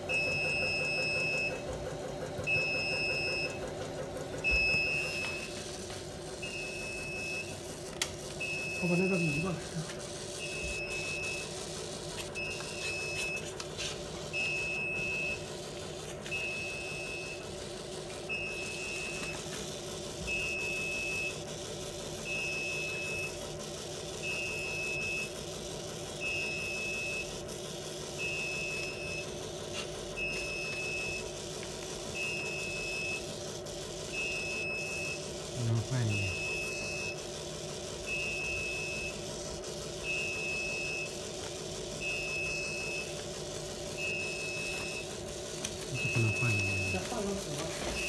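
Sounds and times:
steady machine hum: 0.0s - 48.0s
short electronic beeps: 4.4s - 5.6s, 8.4s - 9.6s, 10.4s - 11.6s, 12.4s - 13.5s, 14.4s - 15.6s, 36.0s - 37.2s, 40.0s - 41.2s, 42.0s - 43.1s, 44.0s - 45.1s, 45.9s - 47.0s.

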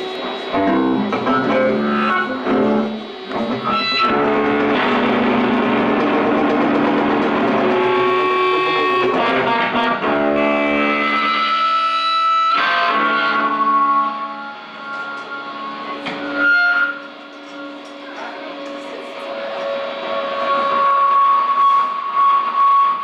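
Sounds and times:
distorted electric guitar chords: 0.0s - 23.0s
live band music: 0.5s - 18.0s.

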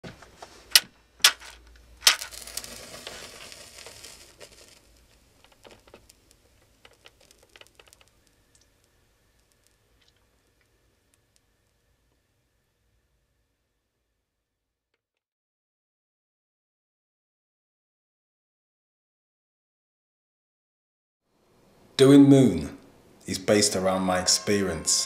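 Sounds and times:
match burning with crackles: 0.7s - 11.8s
match striking: 1.2s - 9.8s
match flaring with hiss: 2.0s - 9.9s.

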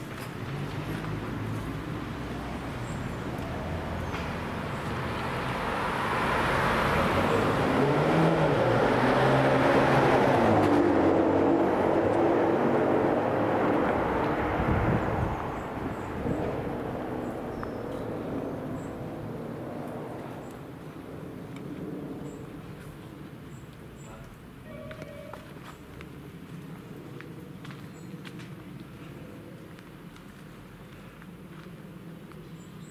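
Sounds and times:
sports car driving past: 0.5s - 22.5s.

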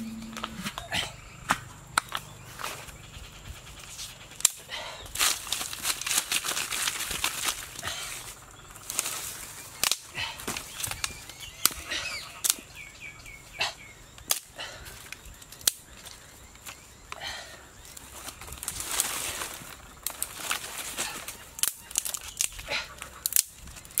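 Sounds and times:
dry leaves rustling and crackling: 5.1s - 11.8s, 17.8s - 24.0s
dry sticks snapping: 8.8s - 12.7s, 14.2s - 17.2s, 17.8s - 24.0s.

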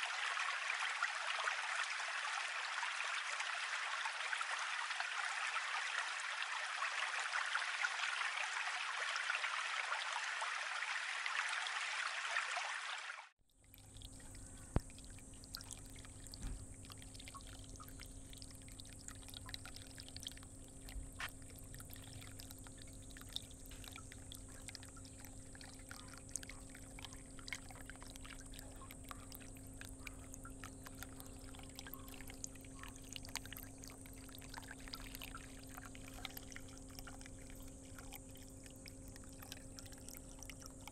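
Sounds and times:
faint steady hum: 0.0s - 11.9s, 13.4s - 40.9s
water drips: 13.5s - 40.9s
water trickling into tub: 13.5s - 40.9s.

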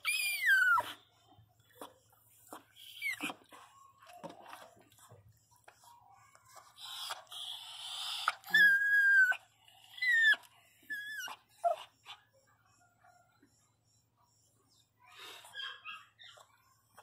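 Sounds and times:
dog whining: 0.0s - 4.9s, 6.1s - 13.6s, 15.0s - 17.0s
dog rasping breath: 0.0s - 14.4s.

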